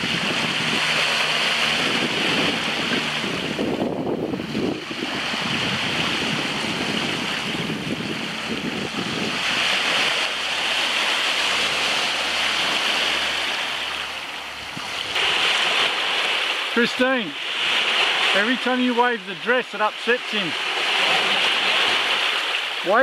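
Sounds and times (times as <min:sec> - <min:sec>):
wind buffeting microphone: 0:00.0 - 0:13.7, 0:14.5 - 0:16.4
small waves lapping shore: 0:00.0 - 0:23.0.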